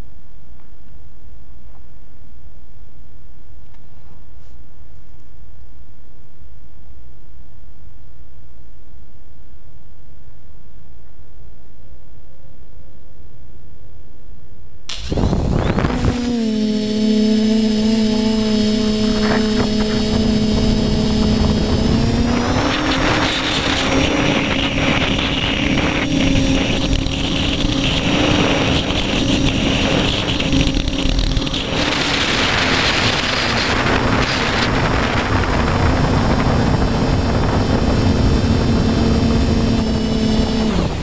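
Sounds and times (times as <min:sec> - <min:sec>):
wind rushing: 0:14.9 - 0:39.9
drone motors buzzing: 0:14.9 - 0:41.0.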